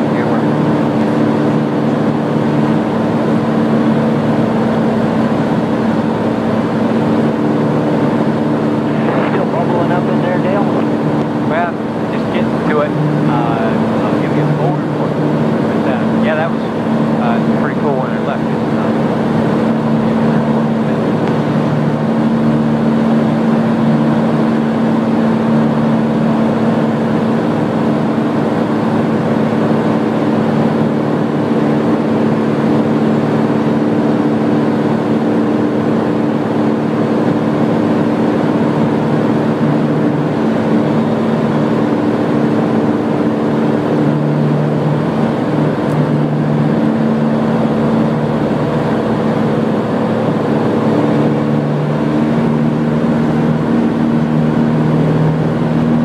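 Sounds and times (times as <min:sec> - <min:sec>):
light aircraft engine droning: 0:00.0 - 0:56.0
rush of air: 0:08.7 - 0:09.6.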